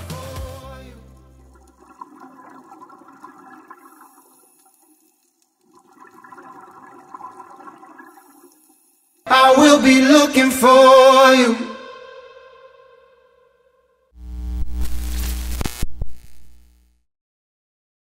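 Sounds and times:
music with singing: 0.0s - 1.4s
underwater exhaled bubbles: 1.4s - 8.8s.

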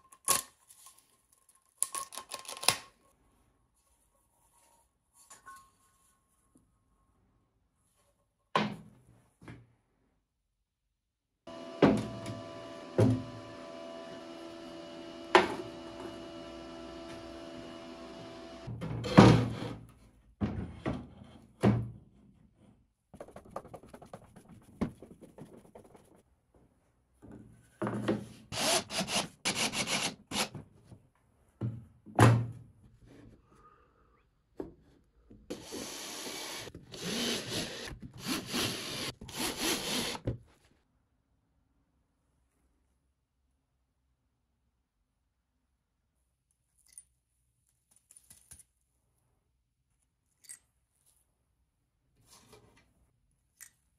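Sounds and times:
cordless drill driving screws: 28.5s - 30.5s, 35.5s - 40.2s.

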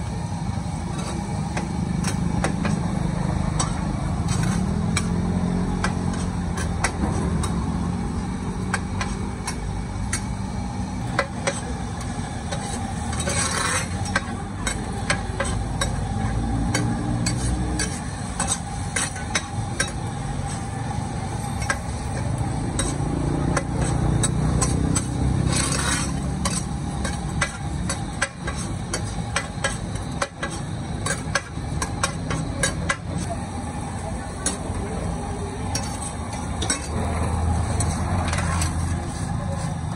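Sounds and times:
metal spatula scraping wok: 0.4s - 33.3s, 35.4s - 39.9s
noodles sizzling: 0.6s - 39.9s.

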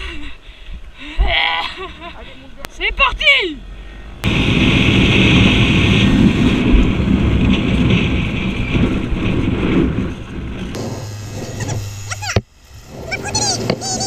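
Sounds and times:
motorcycle engine hum: 2.7s - 14.0s
wind rush on microphone: 4.2s - 12.0s.

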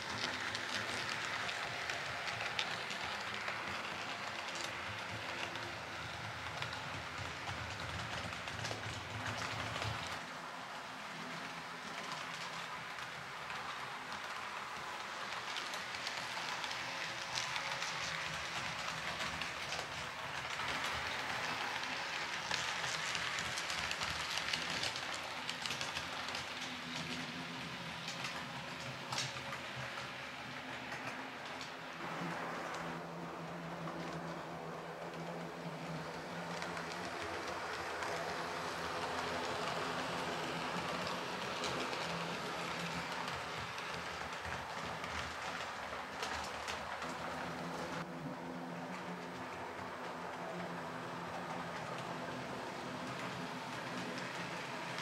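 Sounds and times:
model train wheels rattling on rails: 0.0s - 48.1s, 48.7s - 55.0s.

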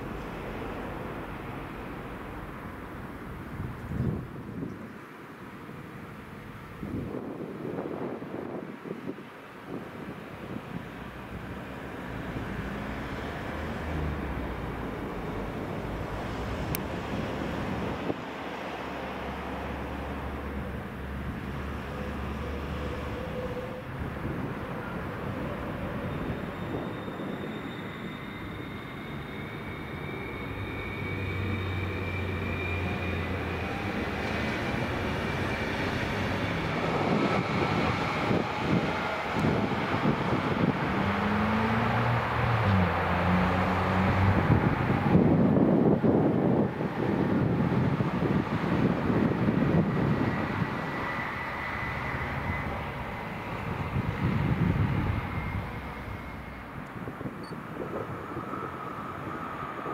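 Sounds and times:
electric train rumble and hum: 0.0s - 59.9s
wind on microphone: 3.4s - 5.0s, 6.7s - 18.4s, 20.6s - 27.5s, 33.4s - 59.9s.

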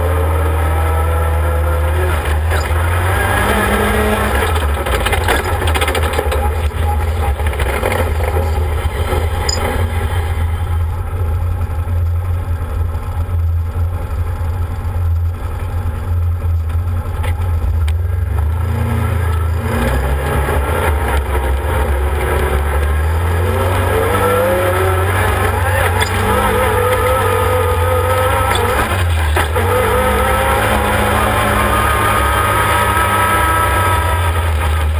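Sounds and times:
utility vehicle engine running: 0.0s - 34.9s.

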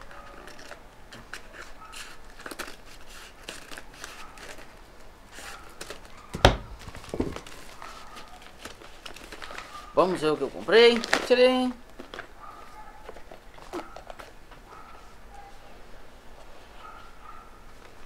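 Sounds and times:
scissors cutting paper: 0.0s - 6.1s
paper crinkling and tearing: 0.0s - 14.4s.

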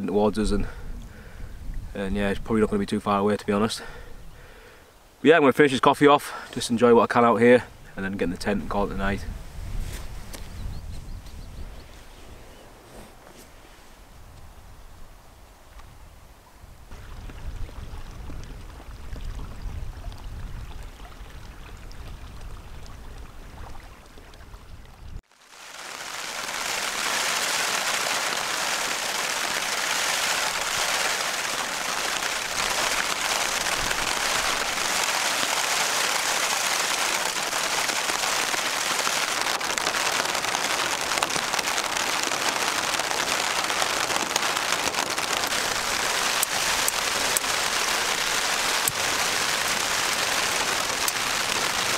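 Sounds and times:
wind rumble on microphone: 0.3s - 2.9s, 7.7s - 12.9s, 13.8s - 25.2s
heavy rain falling: 25.3s - 51.9s.

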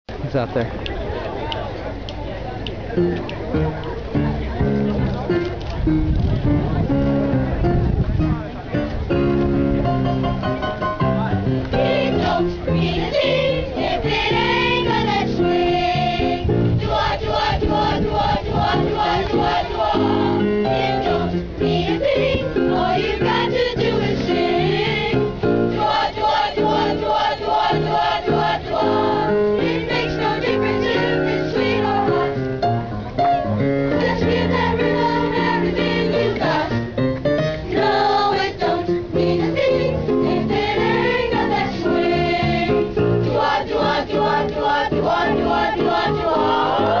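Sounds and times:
instrumental accompaniment: 2.7s - 47.0s
boys' choir singing: 11.7s - 32.5s, 33.9s - 37.0s, 37.6s - 47.0s.

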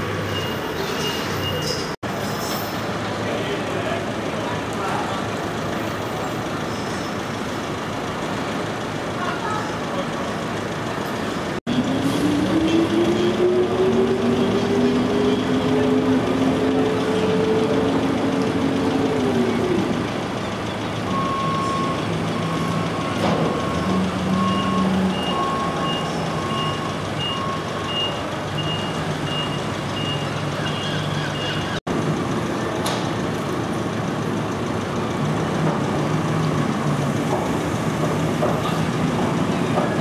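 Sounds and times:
reversing alarm beeping: 0.2s - 1.8s, 20.6s - 31.8s.

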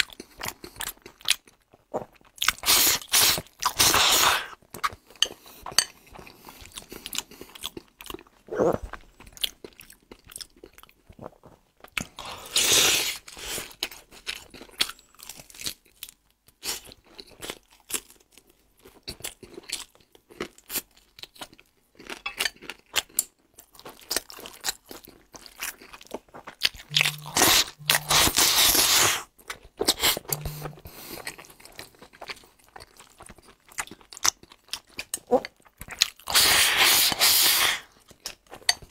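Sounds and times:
person crunching and chewing: 0.0s - 38.9s.

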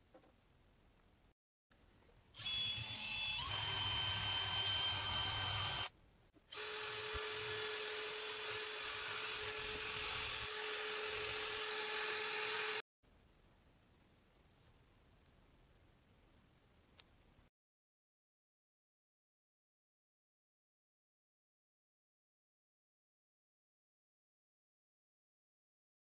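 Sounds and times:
rotary tool whining on metal: 2.4s - 5.9s, 6.5s - 12.8s.

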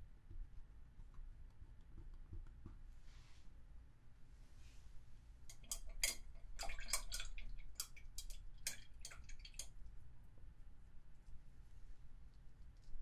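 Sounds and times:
water splashing in cup: 5.5s - 9.8s.

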